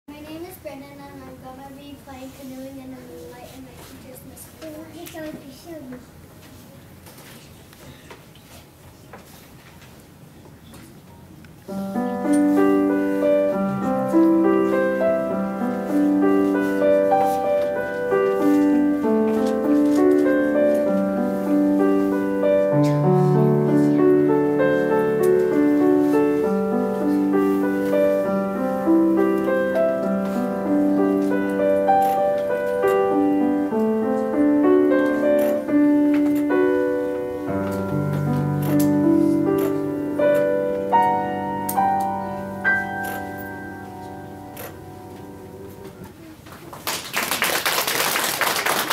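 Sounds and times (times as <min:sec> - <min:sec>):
grand piano playing: 0:11.6 - 0:46.3.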